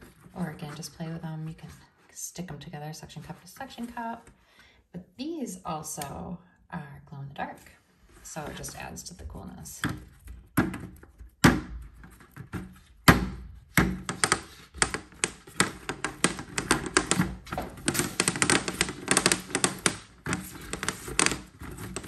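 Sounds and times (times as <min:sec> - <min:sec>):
suction cups popping off: 0:13.8 - 0:22.0.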